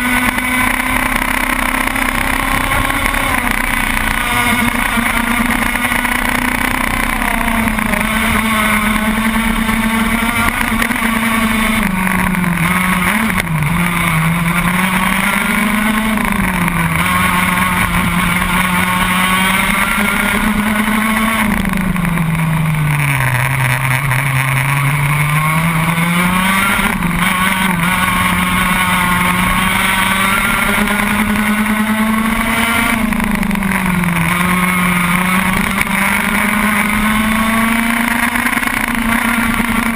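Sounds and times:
racing kart engine revving: 0.0s - 39.9s.

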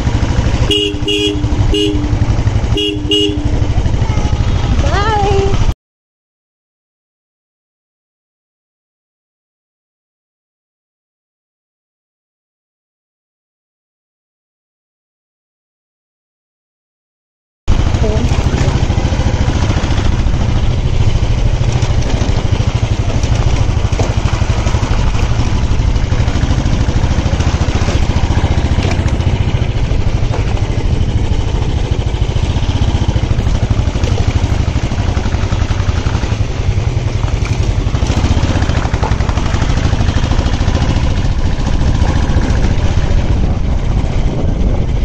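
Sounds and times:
motorcycle engine rumbling: 0.0s - 5.8s, 17.7s - 45.0s.

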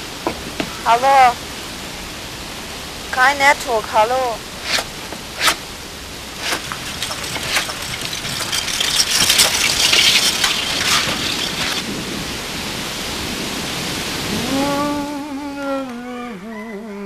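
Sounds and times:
rain falling: 0.0s - 17.0s.

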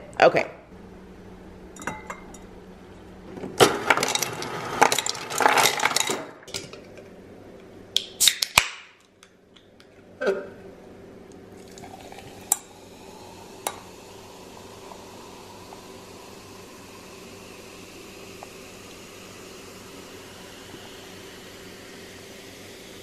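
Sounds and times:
glass clinking: 1.8s - 2.5s
ice cubes clattering into glass: 3.8s - 6.3s
faint fizz: 11.5s - 23.0s.

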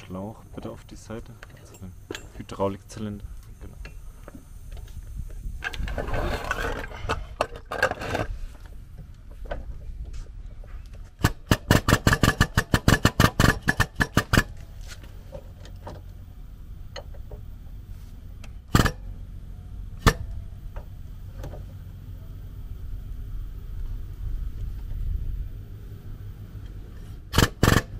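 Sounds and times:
air-hydraulic pump pulsing: 18.7s - 19.1s, 26.8s - 27.9s.

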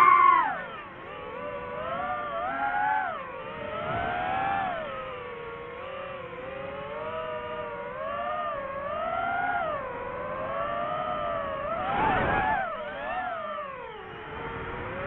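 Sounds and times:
drone propellers whining: 0.0s - 15.0s.

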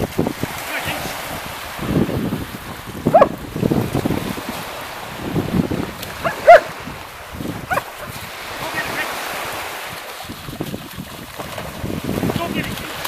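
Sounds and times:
small waves washing on shore: 0.0s - 13.0s
wind on microphone: 0.0s - 13.0s
dog barking high-pitched: 3.1s - 3.4s, 6.2s - 6.7s, 7.7s - 8.0s.

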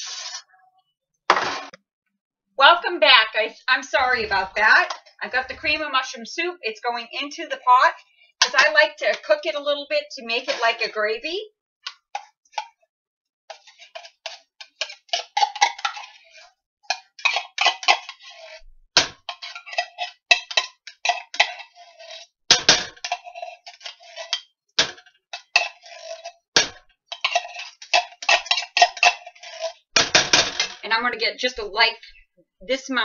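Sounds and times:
metal utensil scraping tin can: 0.0s - 0.4s, 13.5s - 18.6s, 19.2s - 30.8s.

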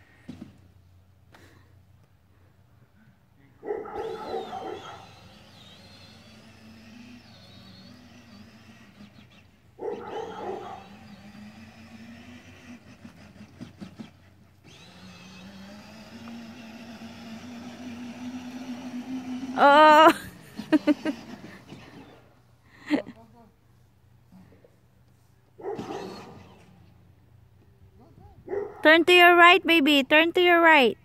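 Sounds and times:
electric toy car motor whine: 4.0s - 22.4s, 25.8s - 27.1s.

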